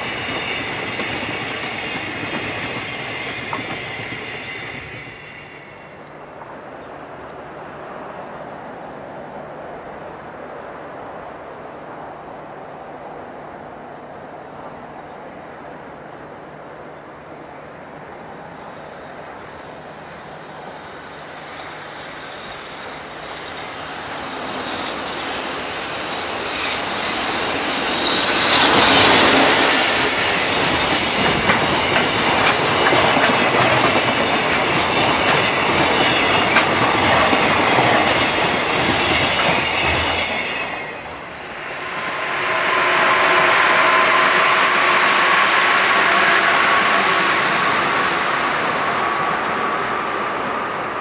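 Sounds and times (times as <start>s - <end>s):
freight train passing: 0.0s - 51.0s
commuter train motor whine: 16.4s - 51.0s.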